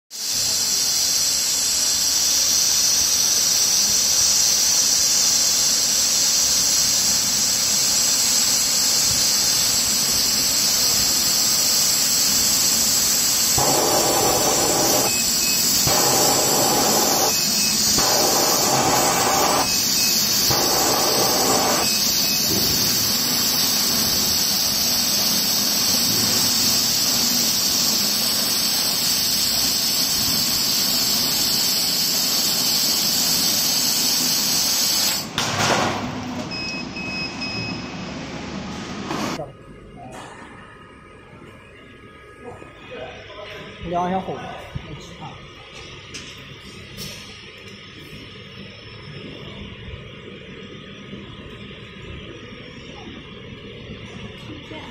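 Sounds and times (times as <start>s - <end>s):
laser cutter hissing: 0.1s - 35.3s
air blowing: 0.2s - 35.0s.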